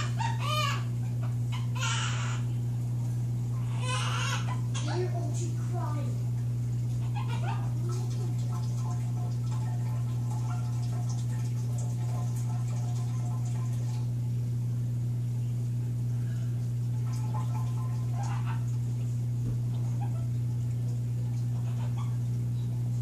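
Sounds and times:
parrot crying like an infant: 0:00.0 - 0:02.5, 0:03.6 - 0:05.2, 0:07.0 - 0:07.9
steady low hum: 0:00.0 - 0:23.0.

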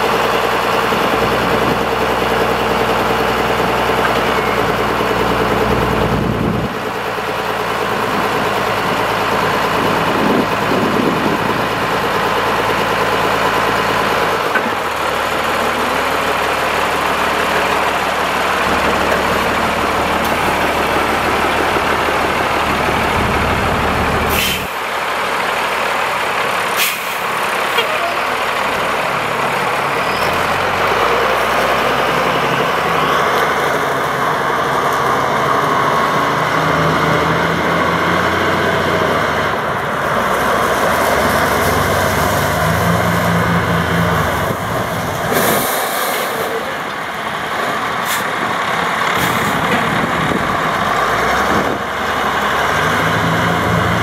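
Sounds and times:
truck engine running: 0:00.0 - 0:54.0.

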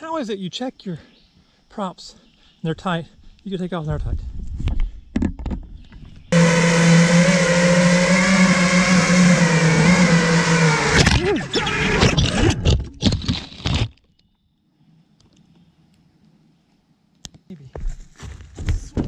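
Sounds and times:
quadcopter motors whining: 0:06.3 - 0:12.7.

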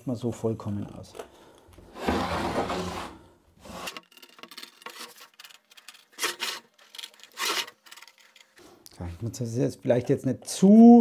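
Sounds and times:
board rubbing on wood: 0:01.9 - 0:04.0
board scraping on wooden bench: 0:01.9 - 0:08.4.

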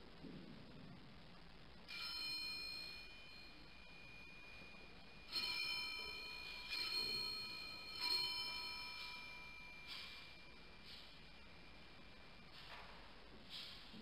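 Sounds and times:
altar bell ringing: 0:01.9 - 0:12.9.

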